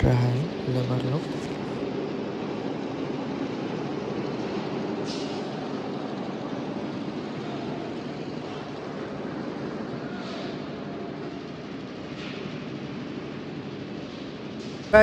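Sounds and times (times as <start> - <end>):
construction machinery drone: 0.0 - 15.0.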